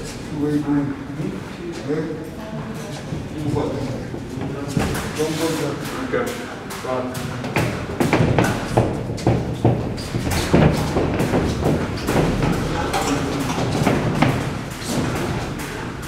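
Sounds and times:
boxing gloves thudding: 7.6s - 12.8s
feet moving on ring canvas: 7.6s - 16.0s.

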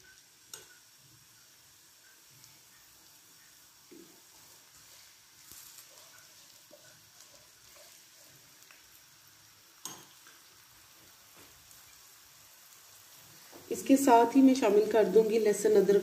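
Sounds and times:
onions frying with small pops: 0.0s - 16.0s.

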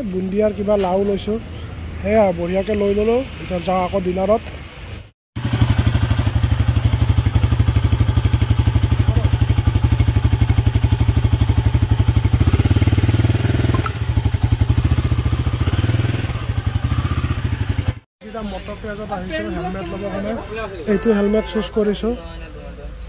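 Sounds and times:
motorcycle engine idling: 5.4s - 18.0s.

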